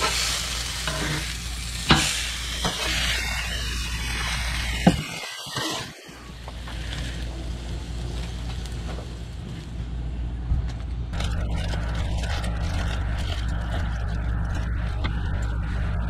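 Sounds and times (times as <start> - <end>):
steady low hum: 0.0 - 16.0
aluminium foil crinkling: 5.8 - 9.7, 11.1 - 14.5.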